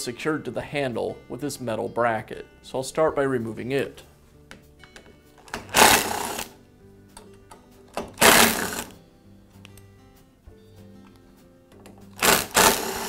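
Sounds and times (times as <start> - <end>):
cordless drill running: 5.6 - 6.5, 8.2 - 8.9, 12.2 - 13.0.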